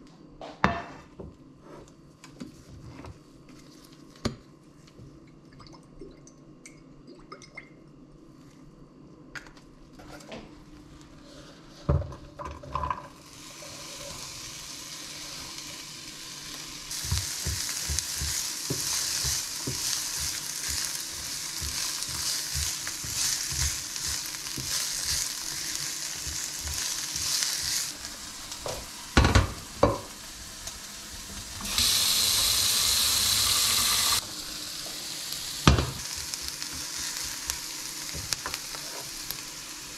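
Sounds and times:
onion sizzling in oil: 13.1s - 39.9s
tap water running into pot: 31.1s - 36.9s.

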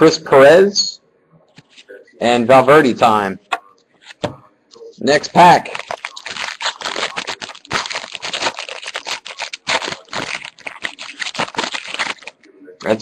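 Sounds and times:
wrapper crinkling and tearing: 5.4s - 13.0s.

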